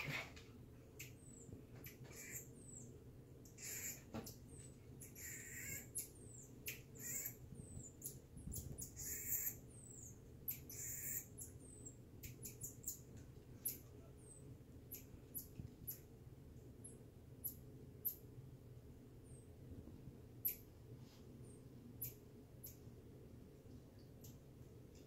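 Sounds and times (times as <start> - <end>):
marmoset chirps and squeaky calls: 1.0 - 2.9, 3.5 - 4.0, 5.0 - 13.0, 13.6 - 14.3.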